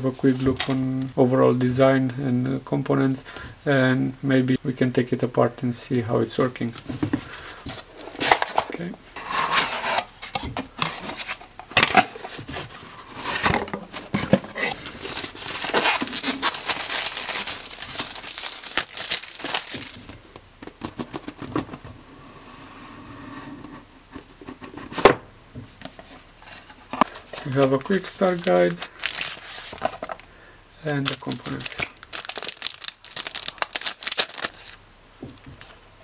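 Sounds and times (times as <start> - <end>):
cardboard box opening: 7.6 - 20.1, 26.0 - 30.2
plastic wrap crinkling: 14.0 - 20.2, 26.4 - 30.3, 30.9 - 34.8.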